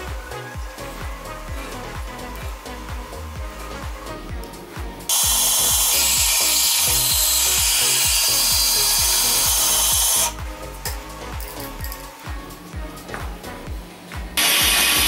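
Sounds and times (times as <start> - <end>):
background music with steady beat: 0.0 - 15.0
band saw cutting wood: 5.1 - 10.4, 14.4 - 15.0.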